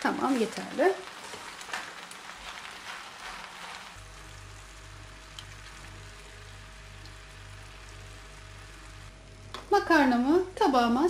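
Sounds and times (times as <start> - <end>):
spatula stirring pasta in pan: 0.0 - 4.2
faint sizzle: 0.0 - 11.0
steady low hum: 4.0 - 11.0.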